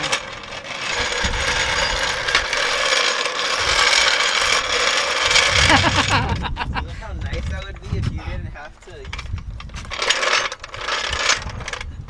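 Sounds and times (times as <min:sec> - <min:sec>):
jack clunking down: 0:00.0 - 0:06.6
floor jack rolling on asphalt: 0:00.0 - 0:08.0, 0:08.8 - 0:12.0.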